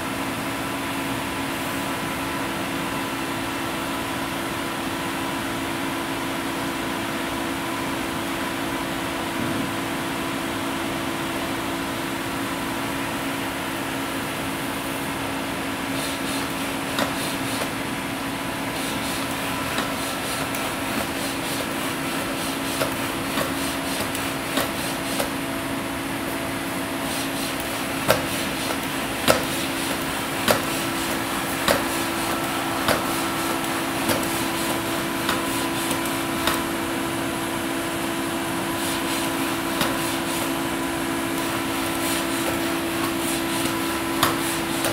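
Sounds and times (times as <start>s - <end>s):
steady machine hum: 0.0s - 44.9s.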